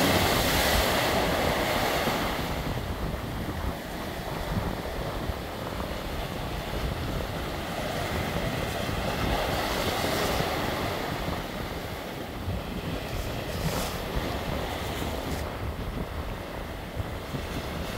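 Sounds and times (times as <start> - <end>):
surf breaking on rocky shore: 0.0 - 17.9
wind buffeting microphone: 0.0 - 17.9.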